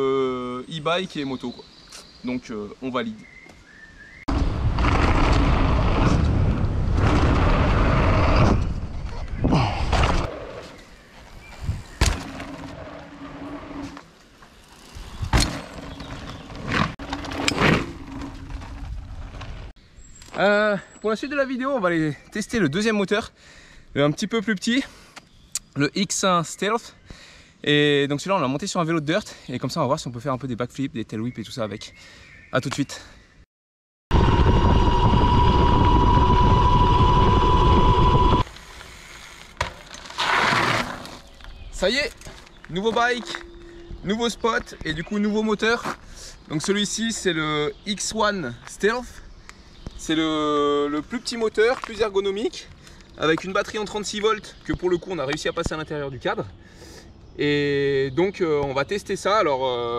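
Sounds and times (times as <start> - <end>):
wind over microphone: 4.3 - 10.4, 11.3 - 12.1, 34.1 - 38.5
tyre rolling noise: 15.0 - 19.7, 39.9 - 41.4
electric motor whine: 34.2 - 38.5.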